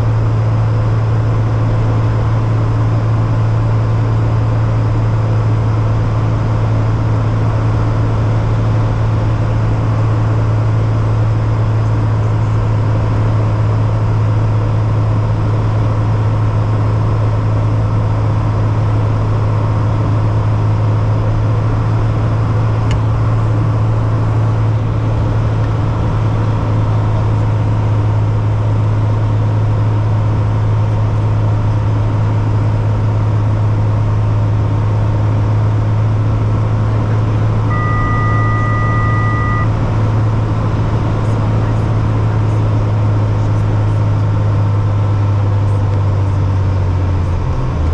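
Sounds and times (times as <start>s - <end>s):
propeller aircraft engine droning: 0.0s - 47.9s
electronic warning tone: 37.6s - 39.8s.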